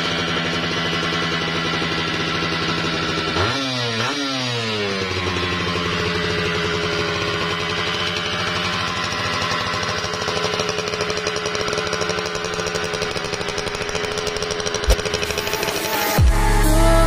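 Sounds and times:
motorcycle engine idling: 0:00.0 - 0:17.0
sharp knock: 0:14.8 - 0:15.4.

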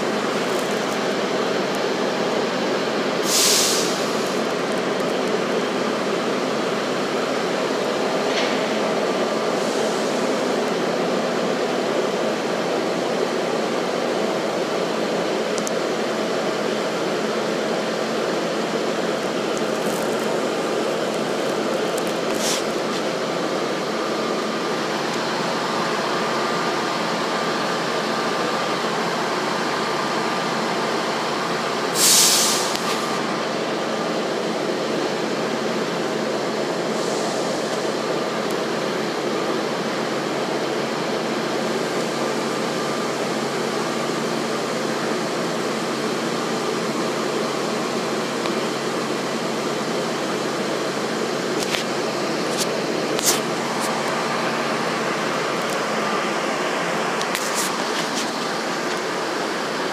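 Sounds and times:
diesel engines idling: 0:00.0 - 0:59.9
loud air hiss: 0:03.1 - 0:04.7, 0:07.8 - 0:11.0, 0:19.4 - 0:26.4, 0:31.8 - 0:34.3, 0:36.6 - 0:39.0.

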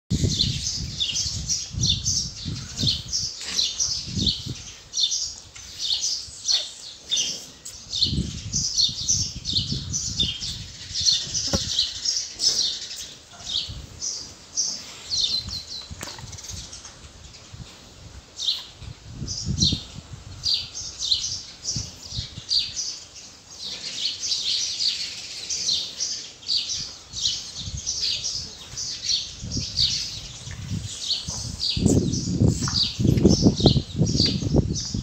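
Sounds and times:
small birds chirping: 0:00.1 - 0:35.0
low thumps: 0:11.2 - 0:11.8.

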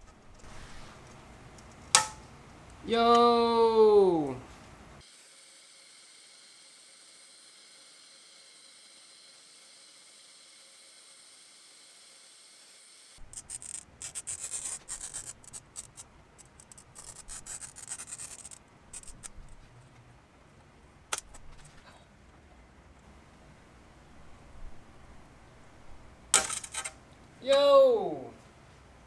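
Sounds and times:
steady hiss: 0:00.0 - 0:02.8
glass snapping crack: 0:01.9 - 0:02.2
glass cutter scratching glass: 0:13.2 - 0:19.4.

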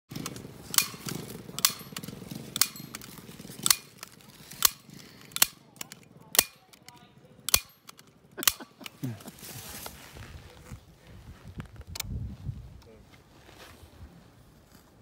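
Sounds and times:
hand staple gun snapping: 0:03.6 - 0:08.6.

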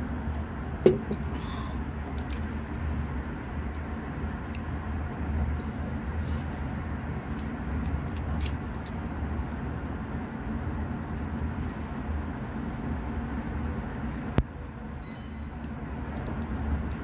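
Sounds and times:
low background rumble: 0:00.0 - 0:17.0
person chewing food: 0:05.6 - 0:10.0, 0:11.0 - 0:14.5.

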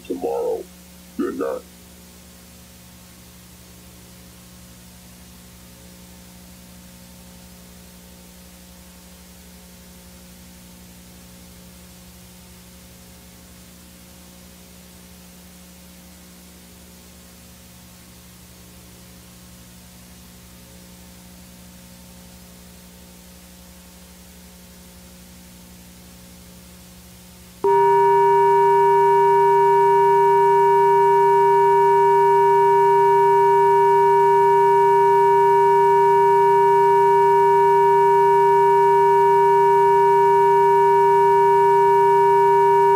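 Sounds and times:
faint hiss and low hum: 0:00.0 - 0:42.9
loud steady test tone: 0:27.6 - 0:42.9.

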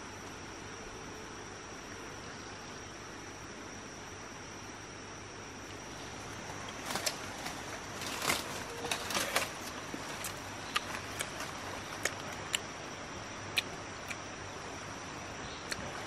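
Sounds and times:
high-pitched insect drone: 0:00.0 - 0:16.0
rustling and handling: 0:05.7 - 0:12.4.

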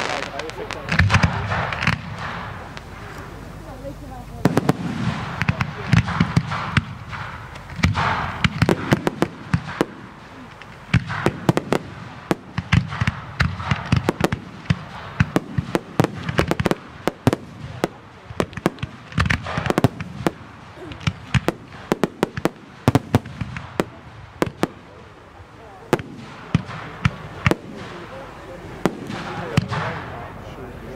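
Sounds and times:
firework shells bursting: 0:00.0 - 0:03.8, 0:04.4 - 0:25.2
firework crackling: 0:00.0 - 0:30.9.

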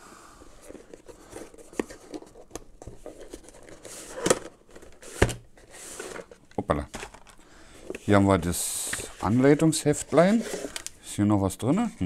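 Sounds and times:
cardboard rubbing and scraping: 0:08.0 - 0:10.8.

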